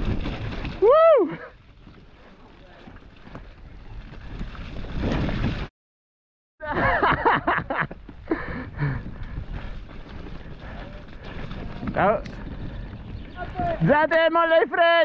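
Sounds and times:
bike rattling: 0.0 - 0.9, 1.6 - 5.7, 7.7 - 14.5
tyres rolling over mud: 0.0 - 5.7, 9.1 - 14.0
wind rush on microphone: 7.6 - 13.9.

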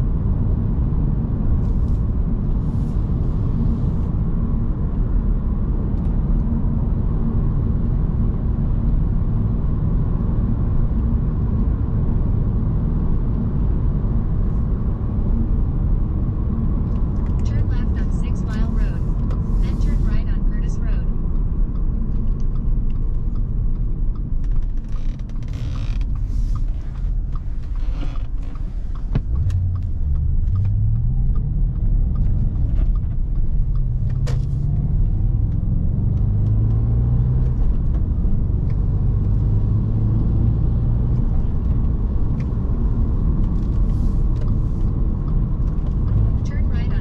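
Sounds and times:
car engine revving: 25.3 - 47.0.

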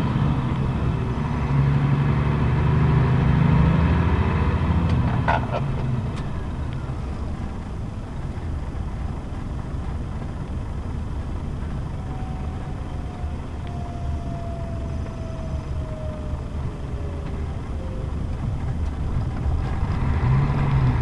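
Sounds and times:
bus diesel engine rumble: 0.0 - 21.0
faint falling whine: 11.6 - 20.8.

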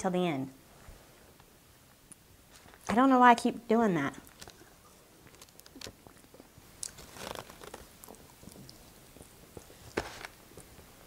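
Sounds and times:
quiet chewing: 4.2 - 10.9.

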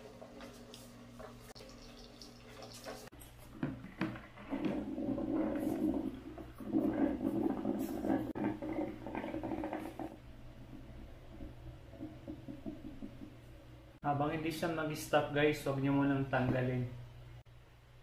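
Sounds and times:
coffee maker gurgling and sputtering: 1.2 - 13.5.

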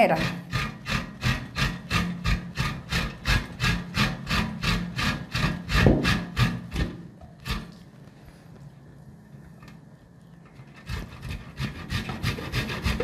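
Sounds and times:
coconut grated on metal grater: 0.0 - 7.8, 10.6 - 13.0.

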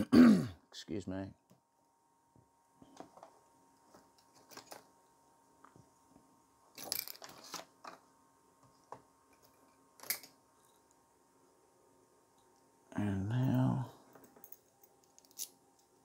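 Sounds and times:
small objects clicking and rustling: 14.2 - 16.0.

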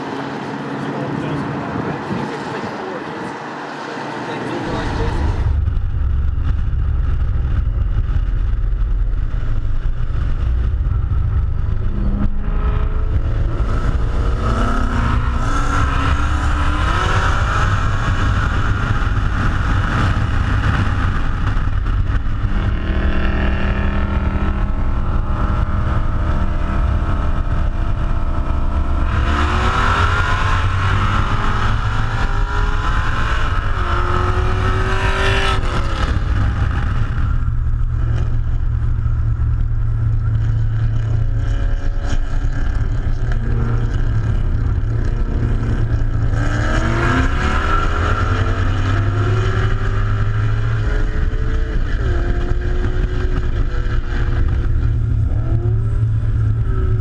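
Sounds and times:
car engines accelerating: 0.0 - 57.0
road rumble: 0.0 - 57.0
wind noise: 4.6 - 57.0.

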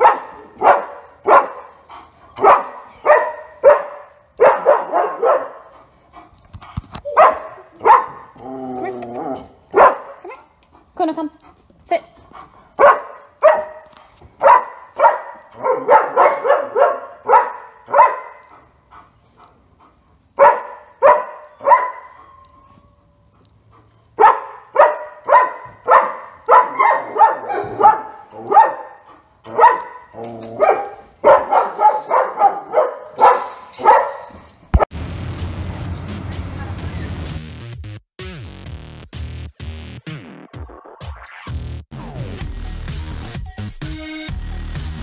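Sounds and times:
dog barking sharply: 0.0 - 1.8, 2.4 - 5.7, 7.1 - 8.2, 9.7 - 10.2, 12.8 - 13.8, 14.4 - 18.5, 20.4 - 22.2, 24.2 - 34.4.

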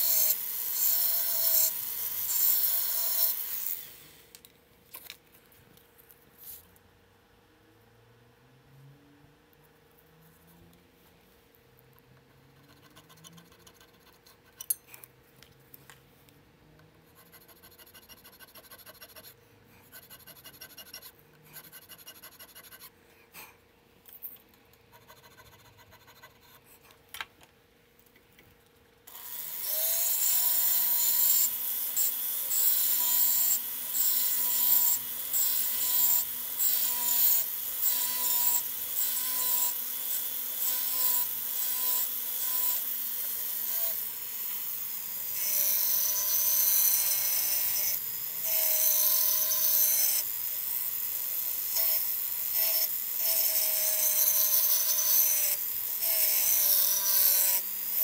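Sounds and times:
tool rasping on wood: 17.2 - 22.9.

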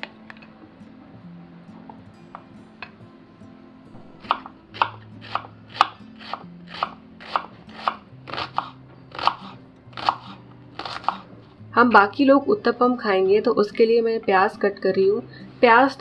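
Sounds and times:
soft background music: 0.0 - 16.0
knife chopping onion on wooden board: 4.0 - 11.3.

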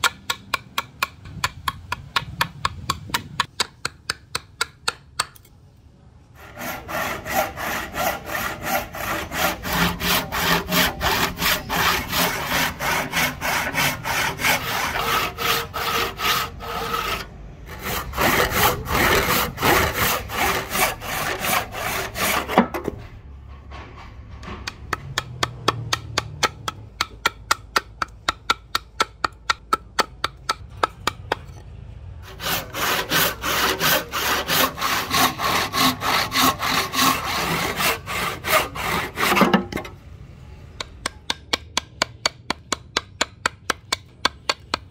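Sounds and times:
hand saw cutting wood: 6.4 - 23.1, 32.2 - 39.9.

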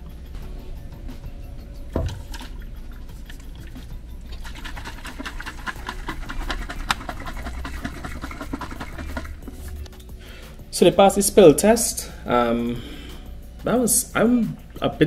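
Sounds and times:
travel mugs rattling: 1.8 - 9.9.

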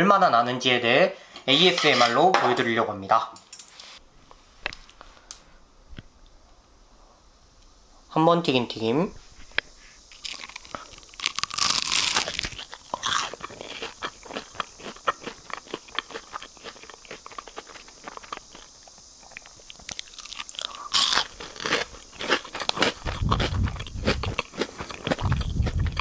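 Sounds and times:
chewing with crisp crackles: 9.6 - 26.0
crunchy bites: 10.1 - 26.0.

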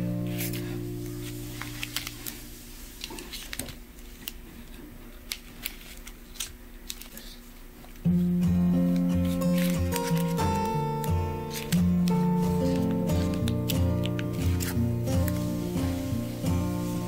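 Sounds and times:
guitar music: 0.0 - 2.4, 8.0 - 17.0
candy wrappers crinkling: 0.2 - 8.0, 8.7 - 17.0.

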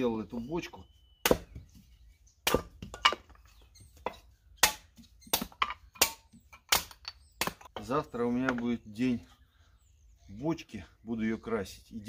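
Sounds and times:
hatchet chopping kindling: 1.2 - 1.8, 2.4 - 8.7.

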